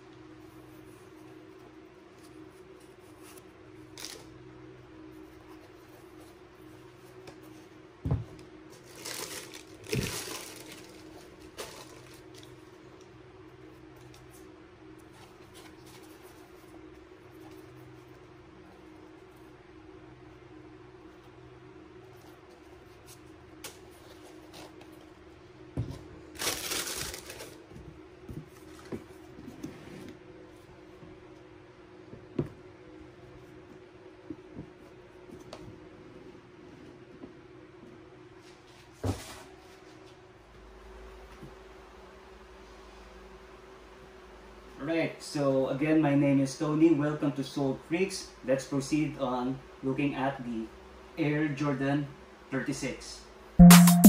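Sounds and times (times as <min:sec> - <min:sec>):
tissue paper crinkling: 0:08.8 - 0:12.4, 0:26.3 - 0:27.6.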